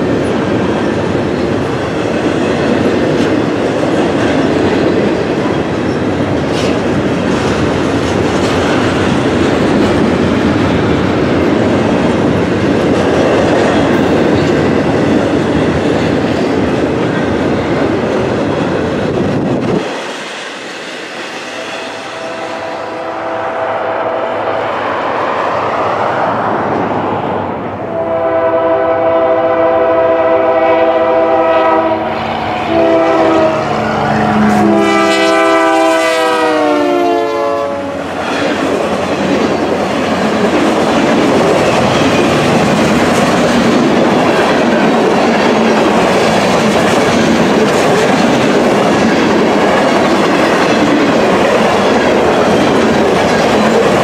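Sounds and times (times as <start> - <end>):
locomotive horn blasts: 21.8 - 24.6, 27.9 - 38.1.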